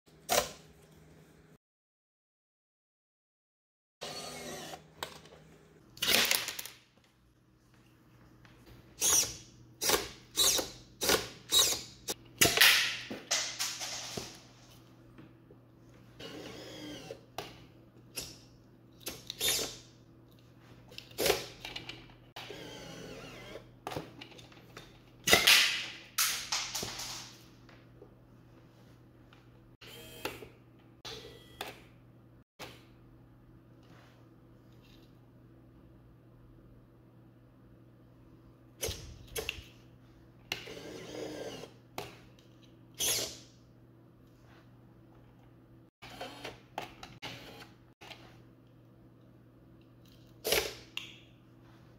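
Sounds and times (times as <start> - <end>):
motor whirring: 4.0 - 4.8, 16.2 - 17.2
small electric motors whirring: 4.0 - 4.9, 9.0 - 12.2, 16.2 - 17.3, 22.4 - 23.7, 40.6 - 41.8, 43.0 - 43.5.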